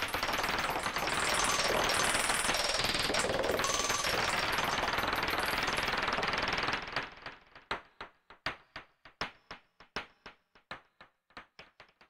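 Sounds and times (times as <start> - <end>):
sharp synthesized clicks: 0.0 - 6.2.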